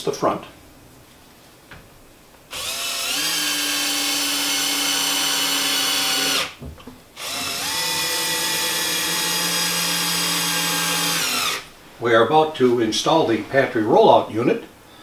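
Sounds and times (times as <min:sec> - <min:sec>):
power drill motor whine: 0:02.5 - 0:06.5, 0:07.2 - 0:11.6.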